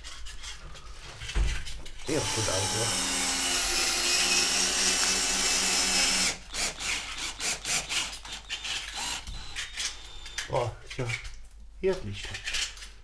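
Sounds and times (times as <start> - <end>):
cordless drill running: 2.0 - 10.4.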